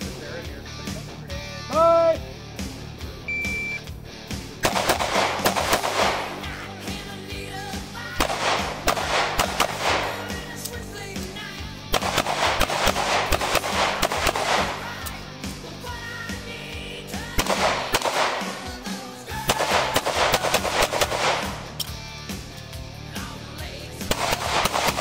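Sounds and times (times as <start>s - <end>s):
background music: 0.0s - 25.0s
pistol shots: 4.6s - 6.7s, 8.1s - 10.7s, 11.9s - 15.1s, 17.3s - 21.9s, 24.1s - 25.0s.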